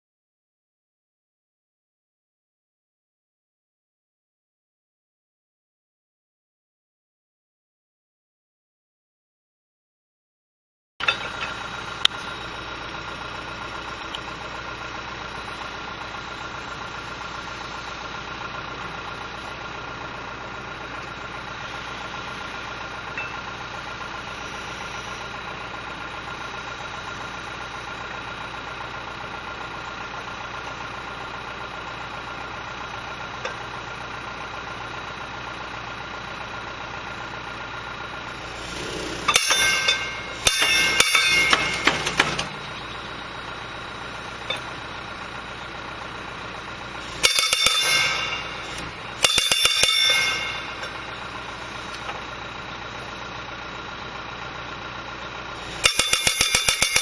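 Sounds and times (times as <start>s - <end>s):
diesel engine running: 11.0s - 57.0s
hydraulic hammer pounding wood: 38.4s - 43.1s, 47.0s - 52.2s, 55.7s - 57.0s.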